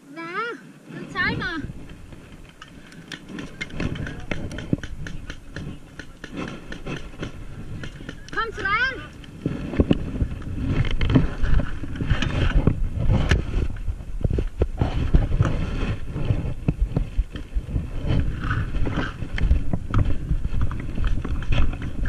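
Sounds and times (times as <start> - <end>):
wind buffeting microphone: 0.9 - 22.0
knocks and clicks: 2.3 - 10.0.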